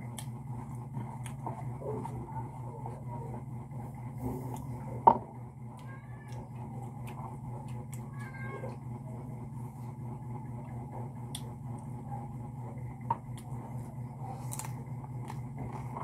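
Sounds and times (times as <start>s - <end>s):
steady low hum: 0.0s - 16.0s
cat meowing: 5.8s - 6.6s, 8.0s - 8.8s.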